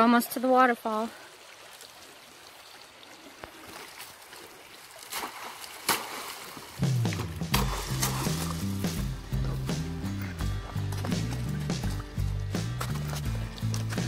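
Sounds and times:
stream trickling: 0:00.0 - 0:14.0
objects splashing into creek: 0:03.2 - 0:14.0
background music: 0:06.8 - 0:14.0.

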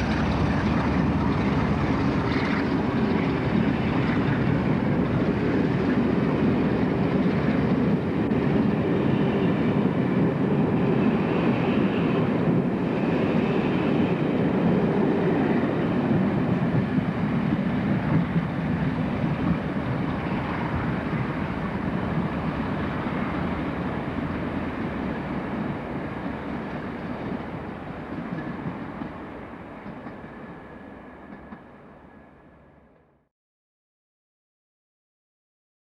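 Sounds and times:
steam train rumbling on track: 0:00.0 - 0:33.2.

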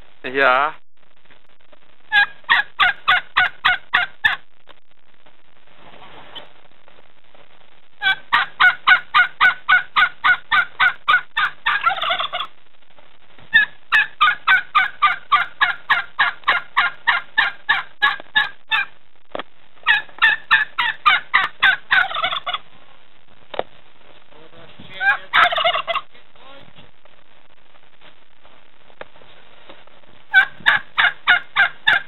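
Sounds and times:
turkeys gobbling: 0:02.1 - 0:04.4, 0:08.0 - 0:12.5, 0:13.5 - 0:18.9, 0:19.8 - 0:22.6, 0:24.9 - 0:26.1, 0:30.3 - 0:32.0.

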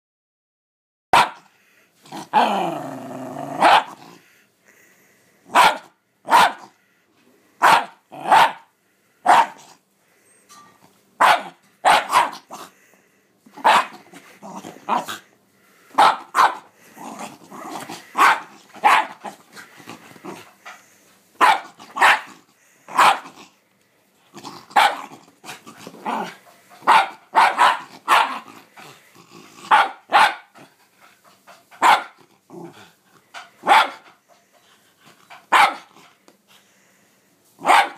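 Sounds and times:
dog barking sharply: 0:01.1 - 0:01.5, 0:03.6 - 0:04.0, 0:05.5 - 0:06.7, 0:07.6 - 0:09.7, 0:11.2 - 0:12.5, 0:13.6 - 0:14.0, 0:15.9 - 0:16.7, 0:18.2 - 0:19.2, 0:21.4 - 0:22.3, 0:22.9 - 0:23.3, 0:24.8 - 0:25.1, 0:26.8 - 0:28.4, 0:29.7 - 0:30.5, 0:31.8 - 0:32.2, 0:33.6 - 0:34.0, 0:35.5 - 0:35.9, 0:37.6 - 0:37.9
dog growling: 0:02.0 - 0:04.3, 0:13.5 - 0:15.3, 0:16.8 - 0:20.9, 0:21.7 - 0:23.6, 0:24.2 - 0:26.9, 0:27.8 - 0:30.0, 0:32.1 - 0:33.3.

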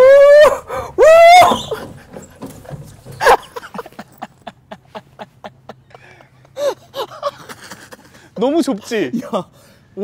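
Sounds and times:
person whooping: 0:00.0 - 0:01.8.

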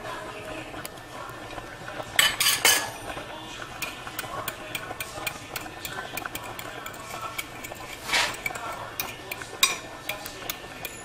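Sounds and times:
metal utensil clinking on cookware: 0:02.1 - 0:03.1, 0:03.8 - 0:11.0.

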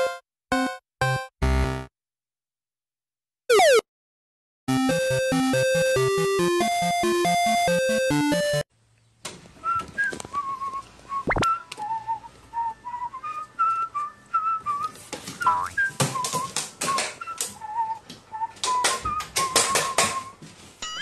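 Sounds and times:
whistled tune: 0:09.6 - 0:21.0.

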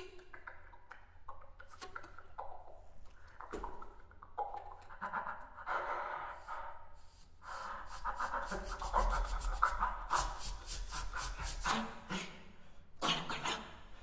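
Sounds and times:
scratchy rubbing noises: 0:07.9 - 0:12.0.

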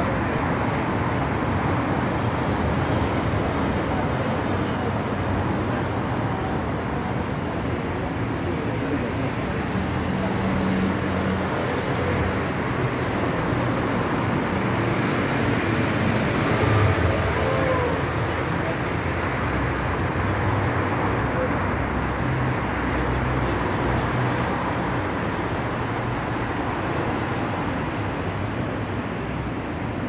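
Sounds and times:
city street traffic: 0:00.0 - 0:30.0
faint voices: 0:15.4 - 0:22.2.

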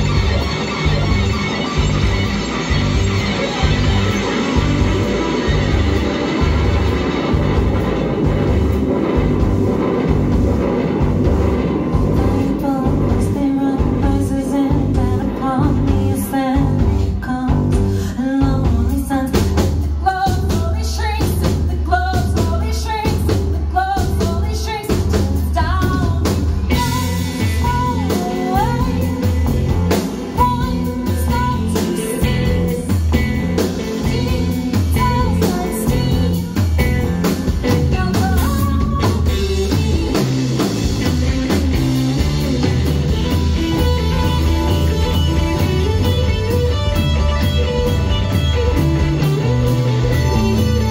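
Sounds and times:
rock band playing: 0:00.0 - 0:50.9
woman singing: 0:12.2 - 0:40.5.

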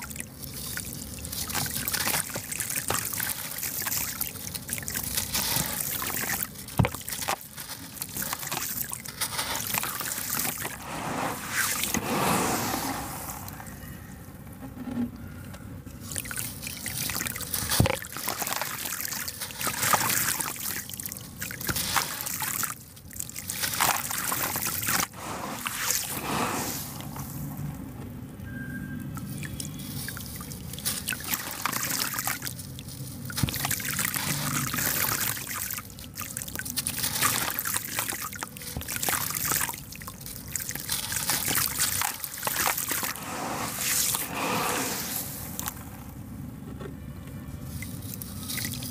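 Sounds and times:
cement lumps crunching by hand: 0:00.0 - 0:13.8, 0:16.9 - 0:27.8, 0:29.7 - 0:35.9, 0:40.4 - 0:46.2
grit pattering into water: 0:00.0 - 0:13.8, 0:16.0 - 0:27.7, 0:29.2 - 0:46.2.

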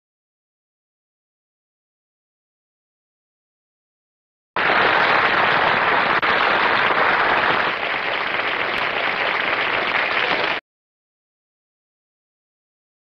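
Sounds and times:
audience applauding: 0:04.6 - 0:10.6.

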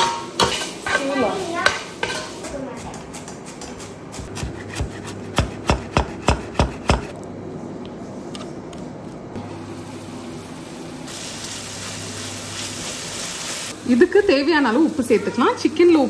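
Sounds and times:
knife chopping on wooden board: 0:04.1 - 0:07.1
hot pan hissing: 0:09.6 - 0:15.1.

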